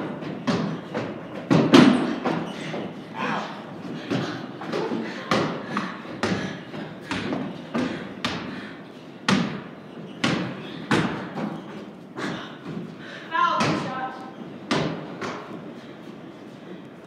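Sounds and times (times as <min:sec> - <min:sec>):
basketball bouncing on wooden floor: 0:00.0 - 0:02.9, 0:03.9 - 0:08.5, 0:09.3 - 0:11.8, 0:13.6 - 0:13.9, 0:14.7 - 0:15.5.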